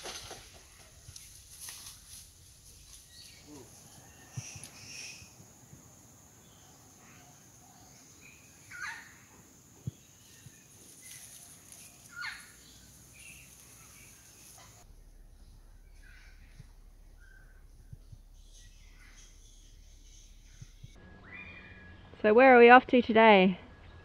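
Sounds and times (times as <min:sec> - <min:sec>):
high insect hum: 0:00.3 - 0:21.6
bird calls: 0:02.7 - 0:14.8, 0:15.8 - 0:22.1
down-sweeping bird calls: 0:03.1 - 0:05.4, 0:08.1 - 0:09.4, 0:10.0 - 0:14.8, 0:15.9 - 0:22.2.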